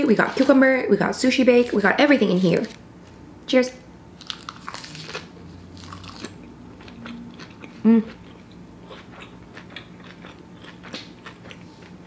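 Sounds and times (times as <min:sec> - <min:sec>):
crisp crunches: 0:04.2 - 0:06.4
person chewing food: 0:04.2 - 0:12.0
person humming: 0:07.8 - 0:08.2.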